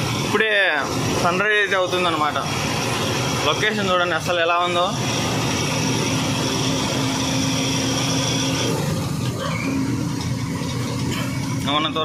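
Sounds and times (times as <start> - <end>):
high steady whine: 0.0 - 12.0
truck engine drone: 0.0 - 12.0.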